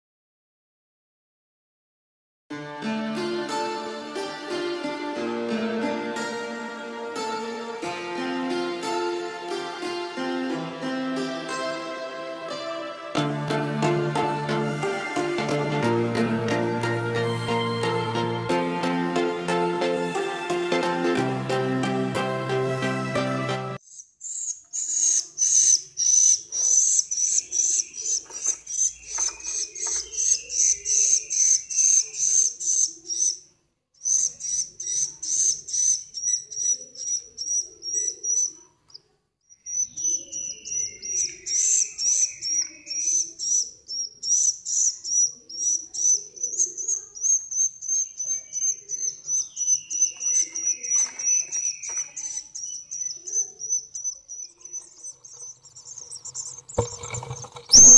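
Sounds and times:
bird chick begging chirps: 0:23.9 - 0:33.4, 0:34.0 - 0:38.7, 0:39.6 - 0:56.8, 0:57.7 - 0:57.9.

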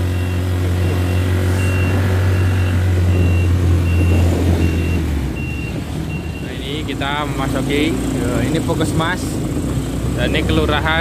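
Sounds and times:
high electronic beeps: 0:00.0 - 0:06.8
truck engine running: 0:00.0 - 0:11.0.

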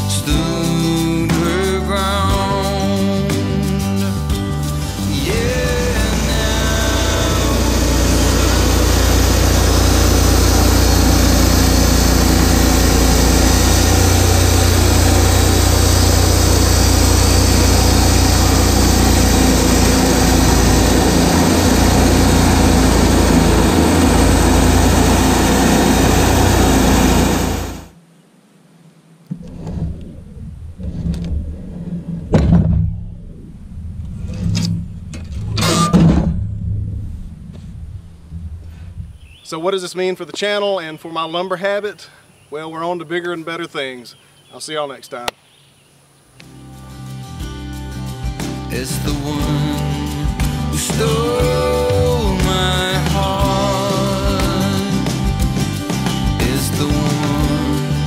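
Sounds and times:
band sawmill cutting log: 0:05.0 - 0:27.9, 0:50.8 - 0:58.0
wood slab knocks and scrapes: 0:29.3 - 0:33.1.

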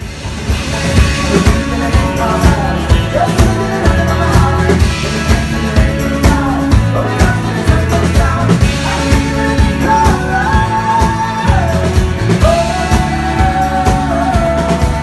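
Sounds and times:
acoustic guitar: 0:00.0 - 0:15.0
electric bass: 0:00.0 - 0:15.0
person singing: 0:00.0 - 0:15.0
steady drum beat: 0:00.0 - 0:15.0.

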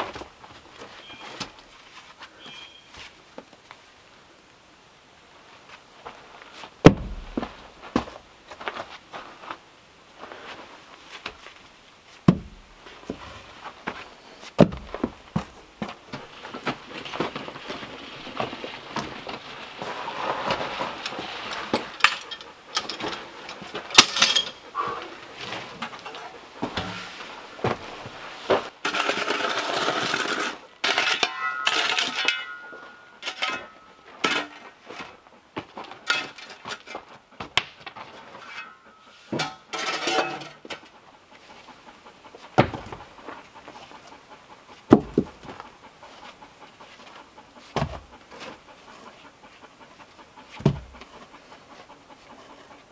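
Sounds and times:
wood scraping: 0:10.2 - 0:37.2
wooden rounds knocking and clattering: 0:12.2 - 0:24.6, 0:42.5 - 0:44.0, 0:44.8 - 0:45.7, 0:50.4 - 0:52.7.

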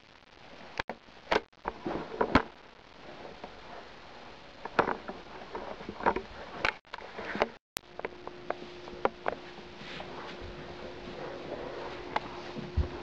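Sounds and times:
footsteps and knocks: 0:07.3 - 0:13.0.

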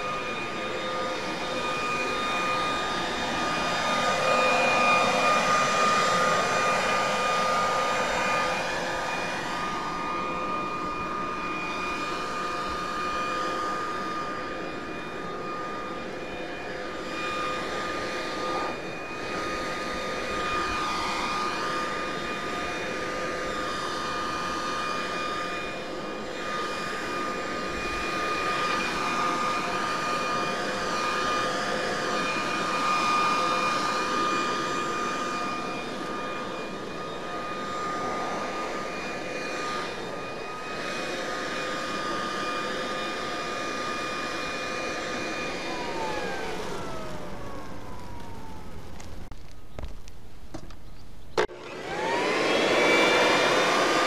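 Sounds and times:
leaf blower motor whine: 0:00.0 - 0:54.0
air rushing from blower: 0:51.5 - 0:54.0.

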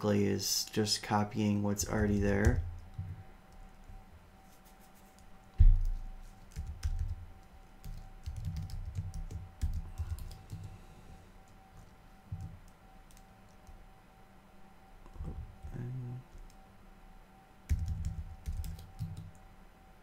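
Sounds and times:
keyboard typing: 0:01.9 - 0:04.0, 0:04.8 - 0:10.8, 0:11.4 - 0:13.8, 0:17.7 - 0:19.4.

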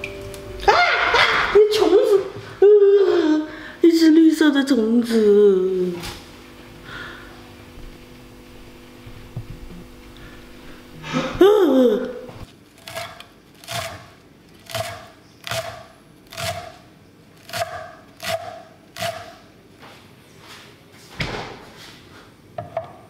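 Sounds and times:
knife cutting chives: 0:12.8 - 0:16.8, 0:17.4 - 0:19.4.

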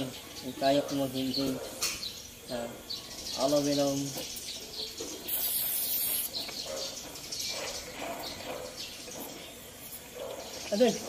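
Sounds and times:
birds chirping: 0:00.0 - 0:11.0
gas torch flame hissing: 0:05.2 - 0:06.6.

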